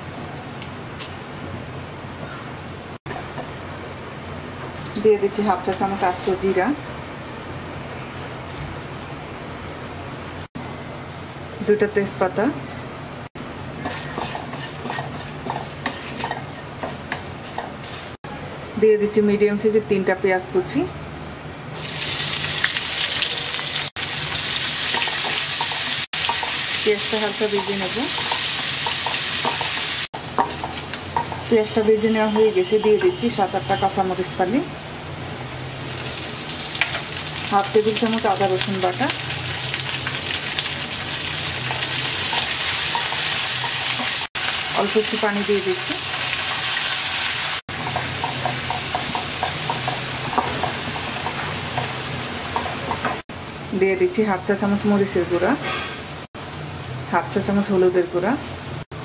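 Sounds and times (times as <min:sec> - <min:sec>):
wooden spatula scraping pan: 0:13.8 - 0:18.2
onions sizzling in hot oil: 0:21.8 - 0:53.2.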